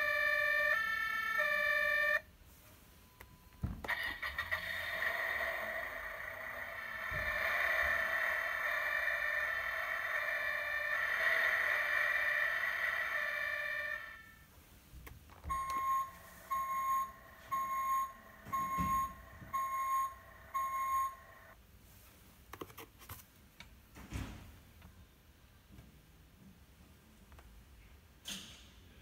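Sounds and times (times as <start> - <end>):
steady electronic tone: 5.1 - 14.4
electronic beeps: 15.5 - 21.6.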